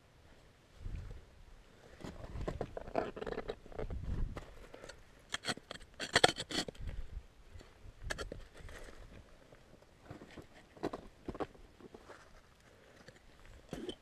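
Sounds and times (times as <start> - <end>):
ice axe scraping on rock: 5.3 - 6.8.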